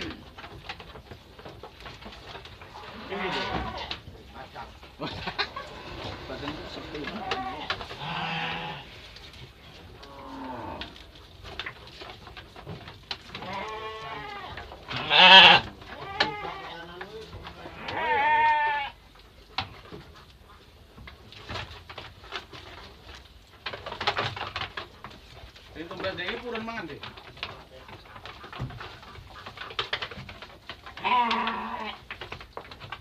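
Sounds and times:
sheep bleating: 2.9s - 4.0s, 7.1s - 8.9s, 13.4s - 16.9s, 17.6s - 19.0s, 31.0s - 32.0s.

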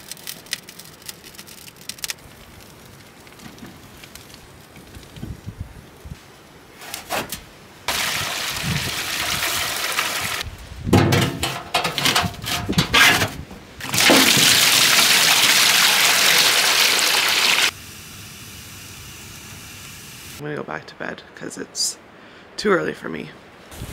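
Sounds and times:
sap pouring into metal pans: 7.9s - 10.4s, 11.2s - 17.7s
liquid sloshing: 13.8s - 16.6s.

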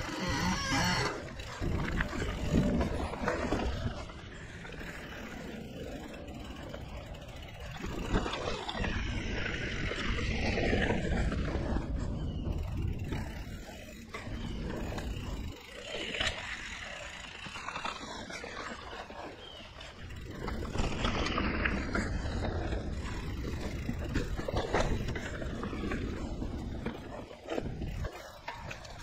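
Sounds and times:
bike rattling over bumps: 0.0s - 29.0s
tyres rolling on dirt trail: 0.0s - 29.0s
wind rumbling on microphone: 0.0s - 29.0s.

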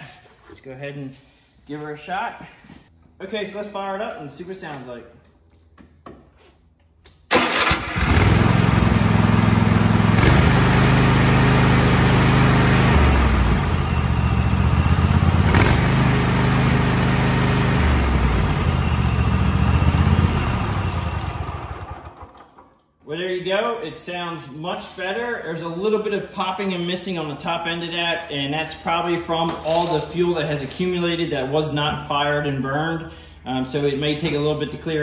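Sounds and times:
engine popping and missing: 7.3s - 10.6s
lawn tractor engine running: 7.3s - 22.7s.

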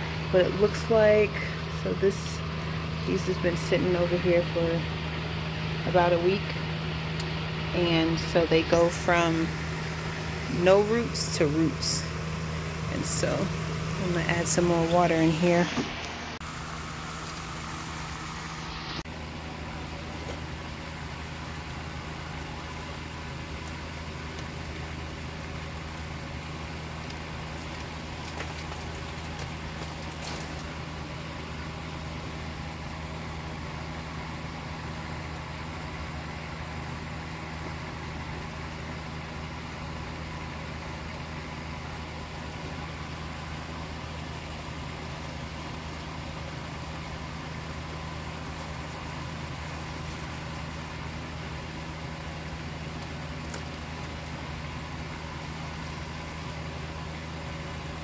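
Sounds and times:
low mechanical hum: 0.0s - 58.0s.

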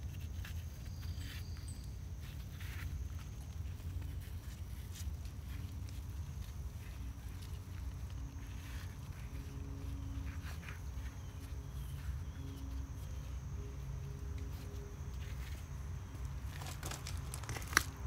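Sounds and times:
hands rustling in soil: 0.0s - 18.0s.

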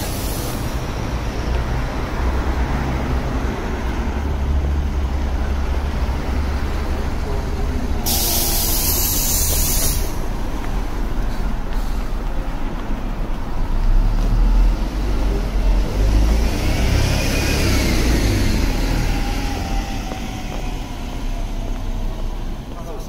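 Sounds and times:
sharp hiss: 0.0s - 0.9s, 8.0s - 10.2s
large vehicle rumbling past: 0.0s - 23.0s
road traffic: 0.0s - 23.0s.

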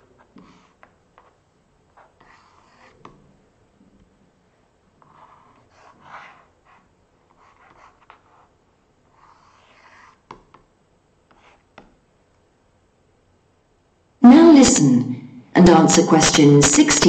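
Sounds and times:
stylus scratching on tablet: 0.0s - 3.3s, 5.0s - 12.0s.

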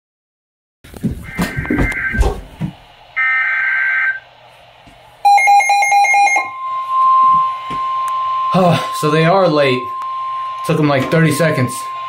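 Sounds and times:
high warning alarm tone: 1.2s - 2.4s, 3.2s - 4.3s, 5.2s - 12.0s
rapid electronic beeps: 1.3s - 2.2s
buzzy two-tone data burst: 5.3s - 12.0s.

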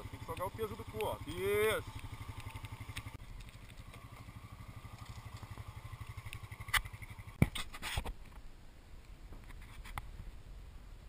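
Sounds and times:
quad bike engine running: 0.0s - 7.4s.

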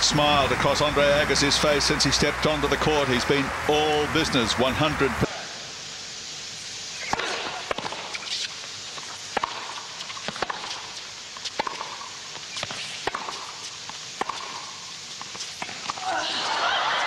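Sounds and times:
tennis ball bouncing: 7.0s - 16.1s
tennis racket hitting ball: 7.1s - 16.1s.

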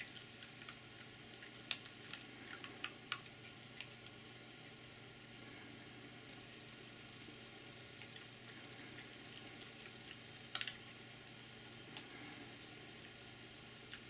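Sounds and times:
fox nibbling and licking fur: 0.0s - 4.3s, 7.9s - 13.2s.

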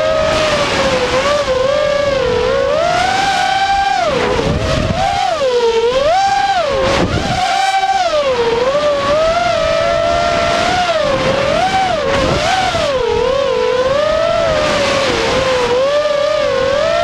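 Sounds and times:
quadcopter motors whining: 0.0s - 17.0s.

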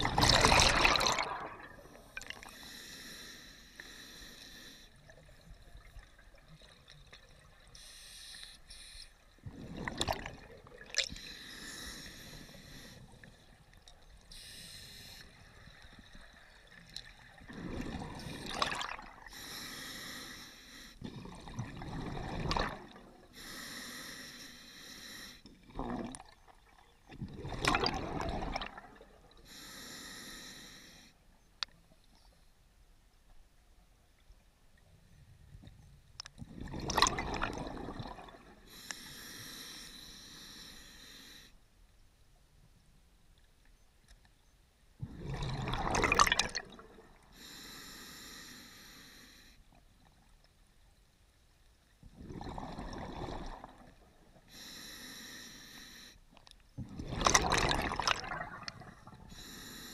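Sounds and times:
regulator breathing hiss: 2.5s - 4.9s, 7.8s - 9.2s, 14.3s - 15.4s, 19.3s - 21.0s, 23.4s - 25.4s, 29.5s - 31.1s, 38.7s - 41.6s, 47.4s - 49.6s, 54.5s - 56.2s, 59.3s - 59.9s.

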